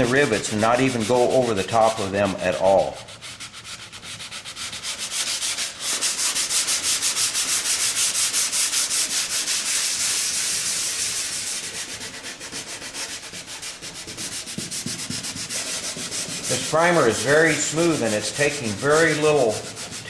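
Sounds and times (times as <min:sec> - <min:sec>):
hand sanding metal: 0:00.0 - 0:20.0.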